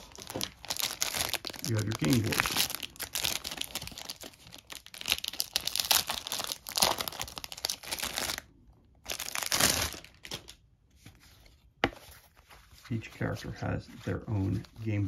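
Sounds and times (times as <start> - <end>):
packaging crinkling and rustling: 0.0 - 10.6.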